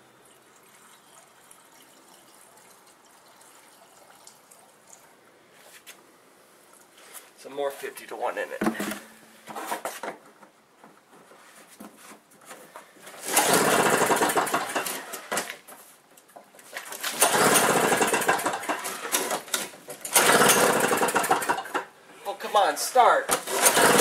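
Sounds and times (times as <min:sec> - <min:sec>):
two-stroke snowblower engine starting: 0:13.1 - 0:15.6, 0:16.9 - 0:21.9, 0:23.3 - 0:24.0.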